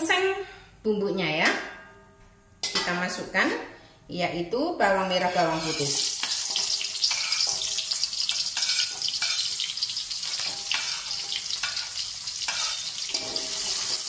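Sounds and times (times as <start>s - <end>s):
shallots sizzling in hot oil: 5.1s - 14.0s
metal utensil scraping and tapping: 5.2s - 14.0s.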